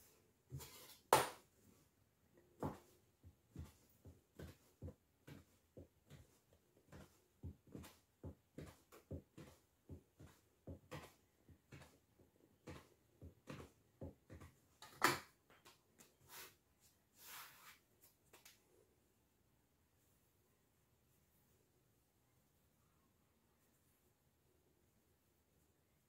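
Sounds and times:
knife chopping dough on table: 0.5s - 1.5s, 2.6s - 15.3s.

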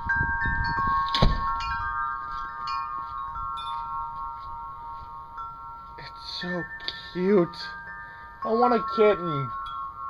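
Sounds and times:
wind chime ringing: 0.0s - 10.0s.

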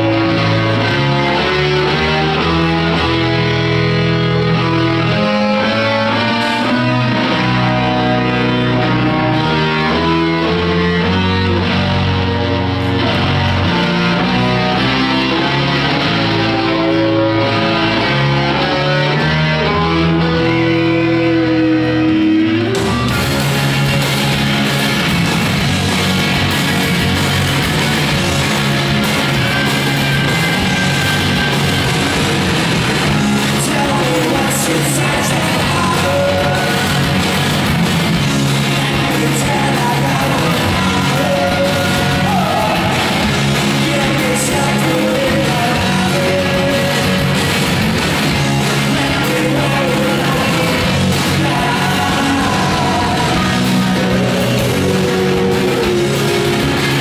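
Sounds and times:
bass guitar: 0.0s - 57.0s
drums: 0.0s - 57.0s
electric guitars: 0.0s - 57.0s
sung and shouted vocals: 33.2s - 37.5s, 38.4s - 47.5s, 48.4s - 57.0s.

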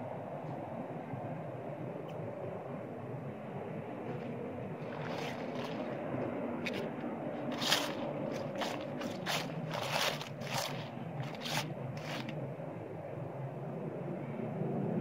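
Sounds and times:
steady low rumble: 0.0s - 15.0s
dry leaves crunching: 4.8s - 6.0s, 6.6s - 12.4s.

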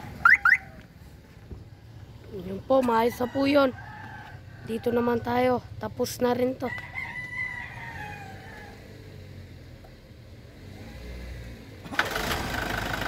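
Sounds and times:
diesel engine cranking and idling: 9.6s - 13.0s.

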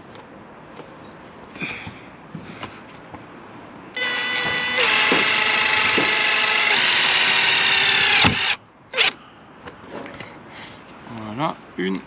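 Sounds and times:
cordless drill whining: 4.0s - 9.2s.

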